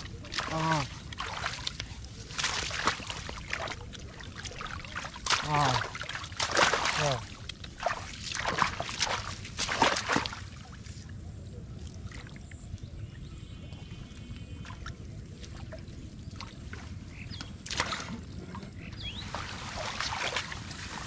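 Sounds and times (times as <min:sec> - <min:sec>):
water sloshing: 0:00.0 - 0:11.2, 0:14.2 - 0:21.0
muddy water splashing: 0:00.0 - 0:21.0.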